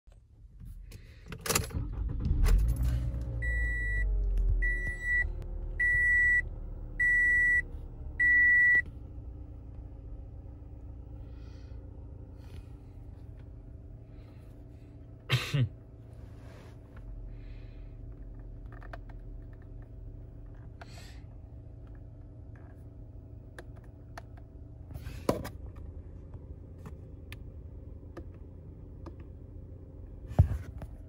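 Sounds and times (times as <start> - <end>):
ignition clicks: 0.1 - 5.2, 21.5 - 24.6, 25.4 - 29.6
car engine starting and idling: 0.1 - 31.0.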